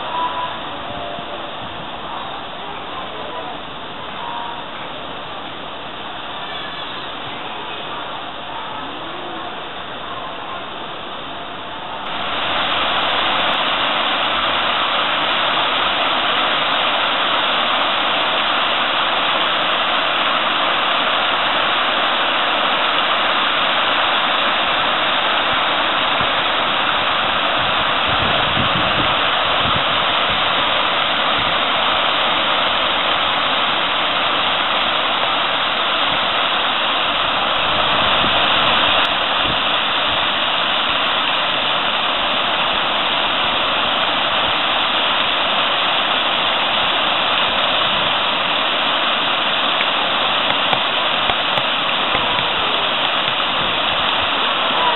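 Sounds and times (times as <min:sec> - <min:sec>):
fountain water splashing: 0:00.0 - 0:54.9
water pouring into pool: 0:12.1 - 0:54.9.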